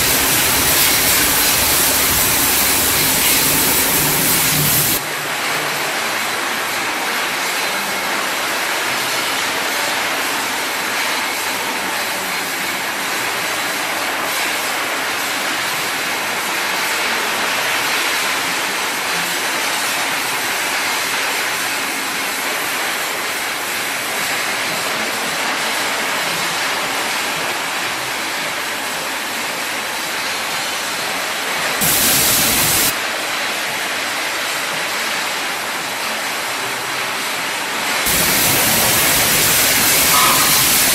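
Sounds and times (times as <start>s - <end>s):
machine rushing noise: 0.0s - 5.0s.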